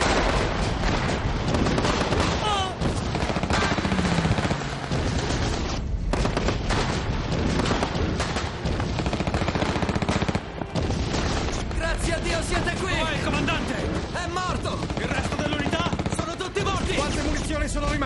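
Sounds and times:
rifle shots: 0.0 - 18.0
machine-gun bursts: 1.5 - 11.6, 14.4 - 18.0.

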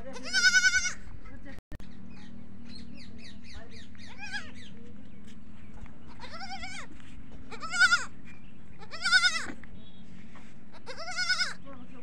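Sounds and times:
goat kid bleating: 0.0 - 1.0, 4.1 - 4.6, 6.1 - 8.2, 8.8 - 9.6, 10.7 - 11.6.

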